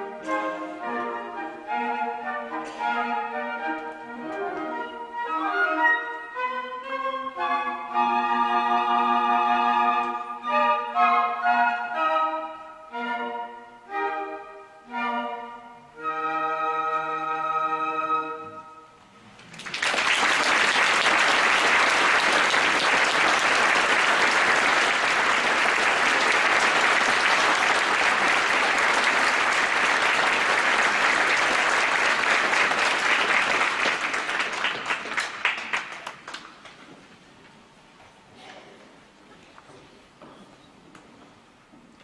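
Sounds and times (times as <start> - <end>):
audience applauding: 19.4 - 36.8.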